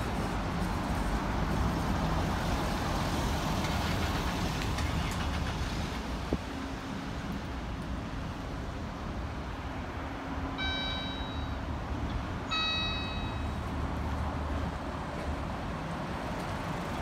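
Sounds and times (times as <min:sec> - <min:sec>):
street traffic: 0:00.0 - 0:17.0
high ringing tones: 0:10.6 - 0:11.8, 0:12.5 - 0:13.7.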